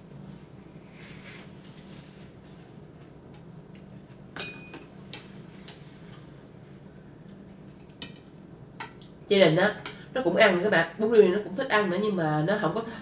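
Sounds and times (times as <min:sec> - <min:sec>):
faint steady hum: 0:00.0 - 0:13.0
spoon and chopsticks clinking bowl: 0:04.4 - 0:05.1.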